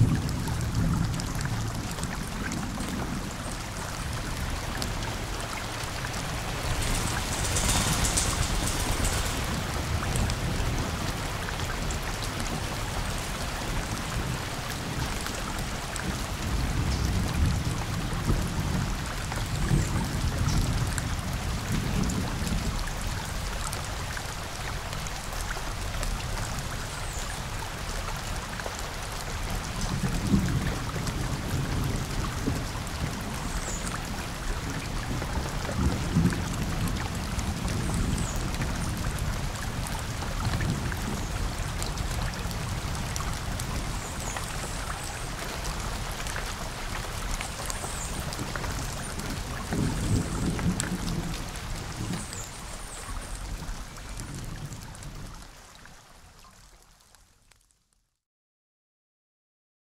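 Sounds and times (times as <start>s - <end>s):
thunder rumbling: 0.0s - 14.4s, 29.4s - 52.8s
rain pattering on leaves: 0.0s - 58.2s.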